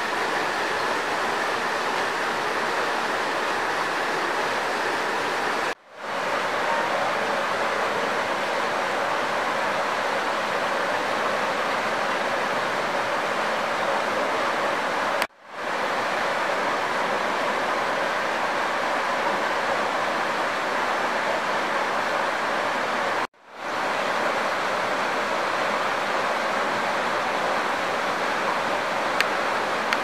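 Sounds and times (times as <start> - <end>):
flowing river water: 0.0 - 30.0.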